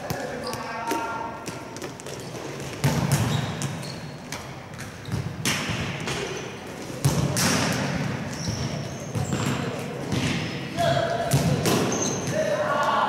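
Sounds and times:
balls kicked and bouncing indoors: 0.0 - 13.0.

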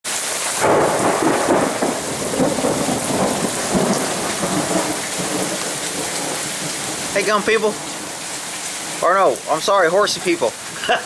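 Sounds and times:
heavy rain splashing: 0.0 - 11.0.

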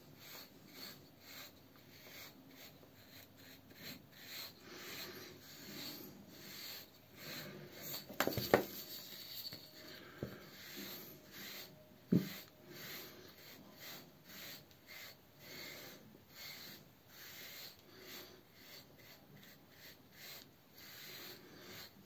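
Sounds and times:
brush rubbing through beard: 0.0 - 22.0.

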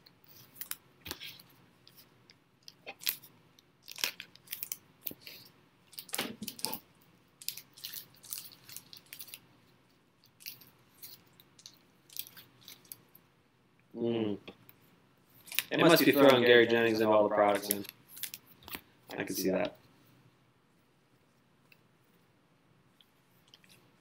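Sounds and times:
plastic sleeves crinkling and rustling: 0.1 - 13.2, 15.3 - 20.1.

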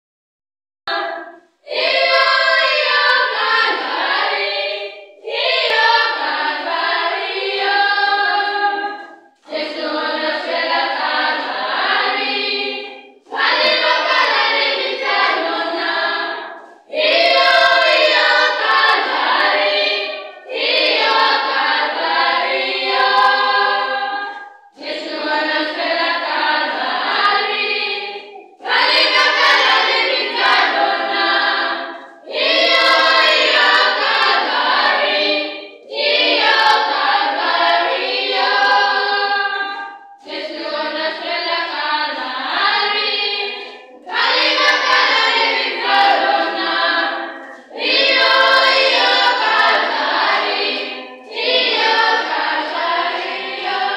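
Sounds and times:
choir singing a cappella: 0.9 - 53.9.

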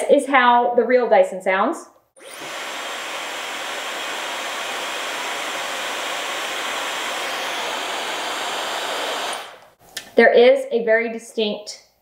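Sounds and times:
hair dryer blowing: 2.2 - 9.8.

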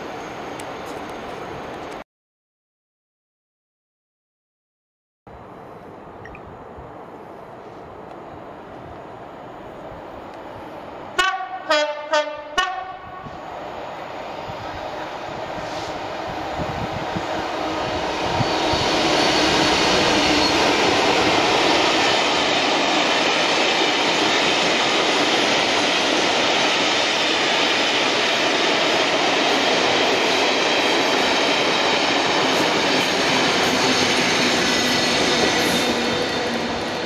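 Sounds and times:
passenger train passing: 0.0 - 2.0, 5.3 - 37.0.

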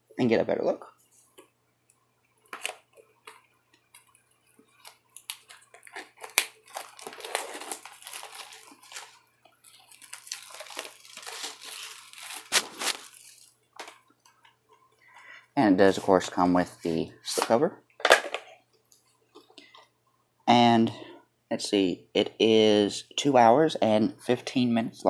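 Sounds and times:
cardboard and plastic rustling: 4.0 - 14.0.

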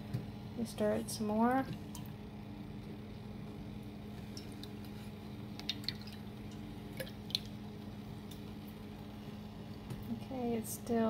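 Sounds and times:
steady low hum: 0.0 - 11.0
liquid swirling in a pot: 1.6 - 10.1.

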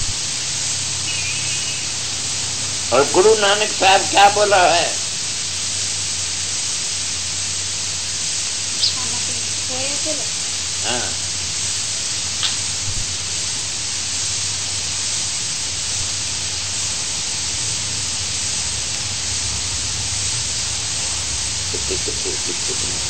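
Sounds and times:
recording hiss: 0.0 - 23.0
faint click: 12.4 - 12.7.

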